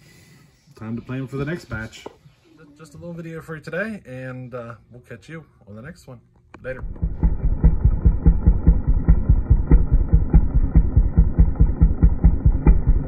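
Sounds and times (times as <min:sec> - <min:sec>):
chainsaw engine idling: 0:06.8 - 0:13.0.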